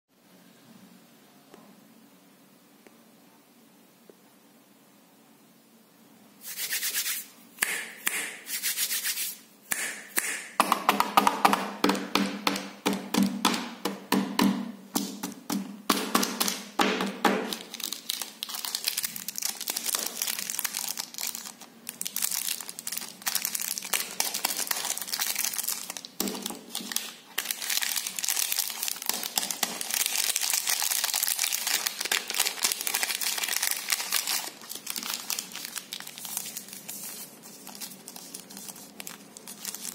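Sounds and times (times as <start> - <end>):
plastic wrappers crinkling and tearing: 17.4 - 39.9.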